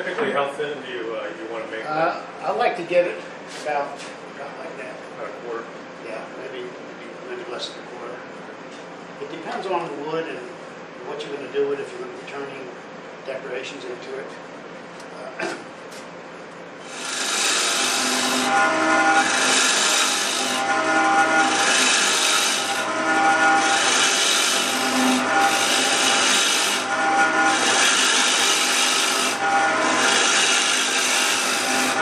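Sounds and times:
lathe tool scraping wood: 16.8s - 32.0s.

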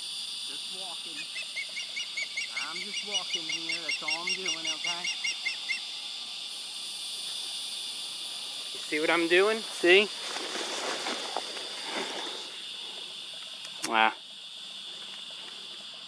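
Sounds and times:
high insect drone: 0.0s - 16.0s
bird chirping rapidly: 1.1s - 6.0s.

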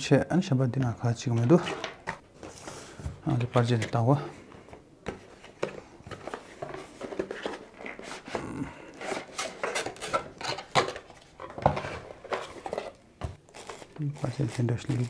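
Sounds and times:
cardboard and paper rustling: 5.0s - 15.0s.

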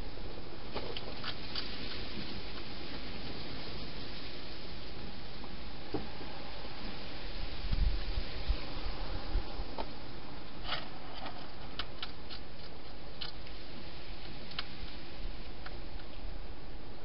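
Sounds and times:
microphone hiss: 0.0s - 17.0s
hedgehog crunching food: 10.6s - 13.6s.

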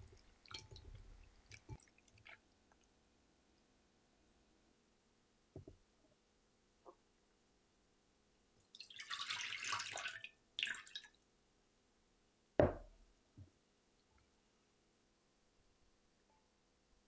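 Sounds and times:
water pouring: 0.0s - 2.4s, 8.7s - 11.1s
glass bowl knocking on wood: 12.6s - 12.9s.

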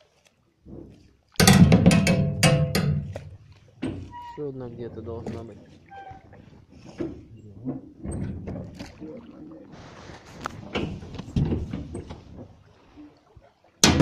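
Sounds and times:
knocks on metal boat hull: 1.4s - 3.2s.

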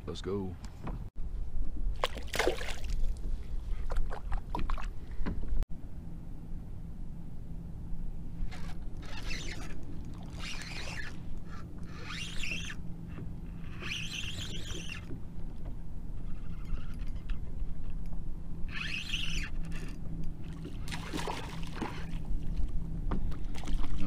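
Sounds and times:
steady low hum: 0.0s - 24.0s
water splashing: 2.0s - 3.2s, 20.5s - 22.6s
fishing reel whirring: 8.4s - 15.1s, 16.1s - 17.5s, 18.6s - 20.7s.

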